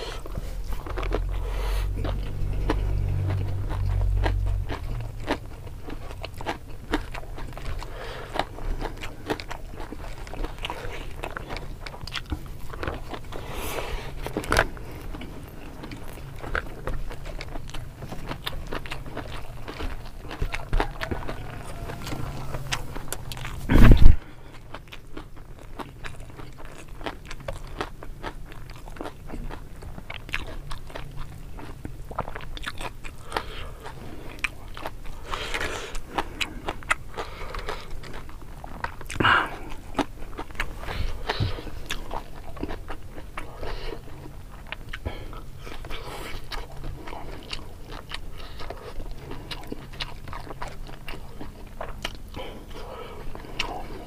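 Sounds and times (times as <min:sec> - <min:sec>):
close chewing and smacking: 0:00.0 - 0:54.0.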